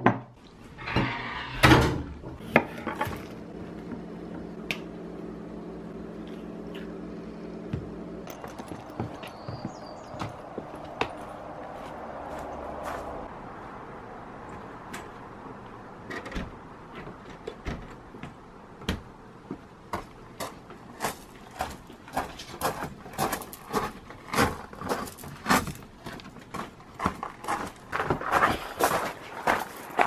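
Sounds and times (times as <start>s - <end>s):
footsteps on wooden boardwalk: 7.6s - 13.3s, 16.4s - 30.0s.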